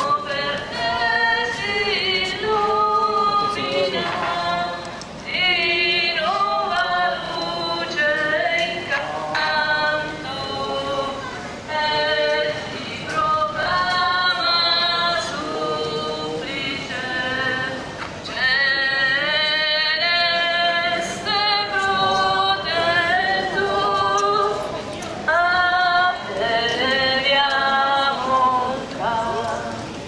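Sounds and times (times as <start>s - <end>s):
group singing a hymn unaccompanied: 0.0s - 30.0s.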